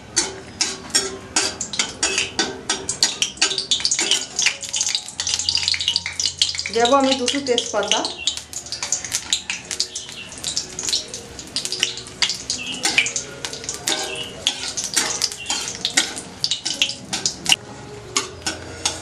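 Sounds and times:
spices sizzling in hot oil: 0:00.0 - 0:17.6
spatula scraping a pan: 0:00.2 - 0:06.6, 0:11.8 - 0:17.4, 0:18.2 - 0:19.0.

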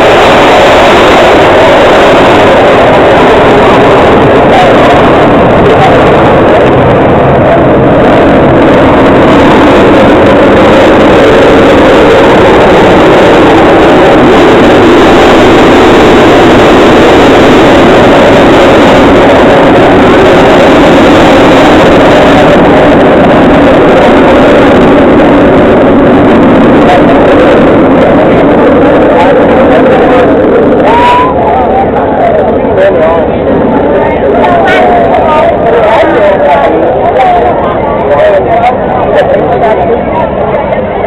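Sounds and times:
aircraft engines roaring: 0:00.0 - 0:41.0.

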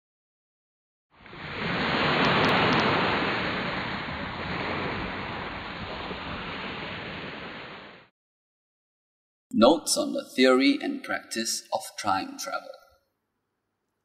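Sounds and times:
rushing surf-like noise: 0:01.2 - 0:08.1.

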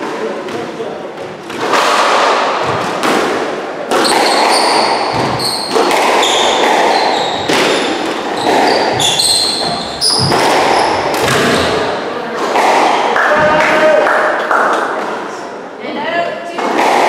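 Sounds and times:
squash ball impacts: 0:00.0 - 0:14.0, 0:16.5 - 0:17.0
shoe squeaks on wooden floor: 0:04.0 - 0:11.9.

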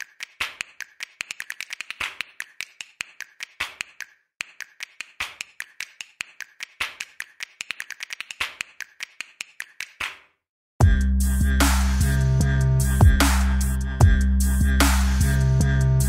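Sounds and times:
sharp clicks and snaps: 0:00.0 - 0:10.2.

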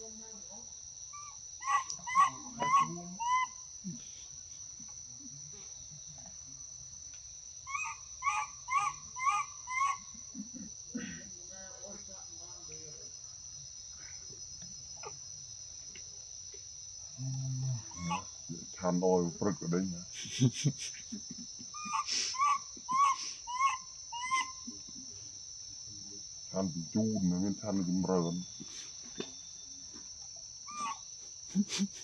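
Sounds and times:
high insect drone: 0:00.0 - 0:32.0
baby monkey calls: 0:01.2 - 0:03.7, 0:07.7 - 0:10.3, 0:17.9 - 0:18.3, 0:21.7 - 0:24.7, 0:30.6 - 0:31.1.

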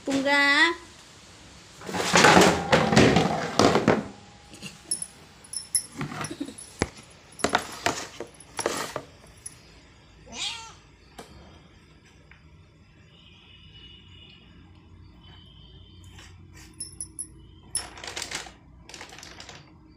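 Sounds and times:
cat rustling and scuffling: 0:05.9 - 0:09.5
cat meowing: 0:10.3 - 0:10.8.

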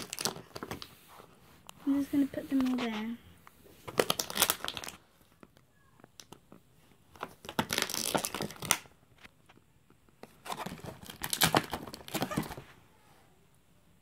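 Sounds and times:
plastic packaging crinkling: 0:00.0 - 0:01.0, 0:03.8 - 0:05.1, 0:07.1 - 0:09.0, 0:10.2 - 0:12.6.

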